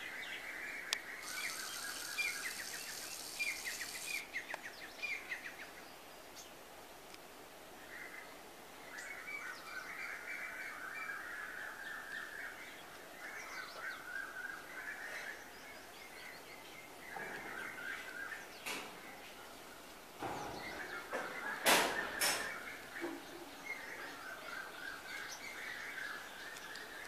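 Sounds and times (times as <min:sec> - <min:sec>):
sparrows chirping: 0:01.1 - 0:06.5, 0:12.2 - 0:27.0.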